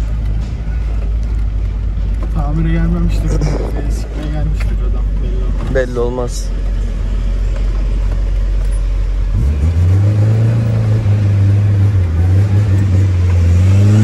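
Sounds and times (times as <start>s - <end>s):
car engine droning inside cabin: 0.0s - 14.0s.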